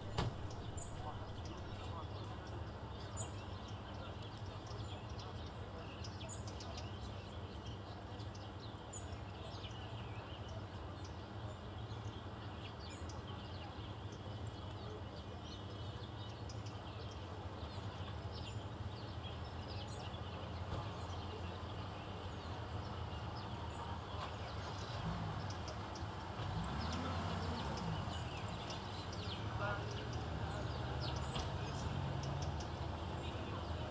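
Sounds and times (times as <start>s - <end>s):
distant crowd: 0.0s - 33.9s
faint high chirps and ticks: 31.0s - 33.8s.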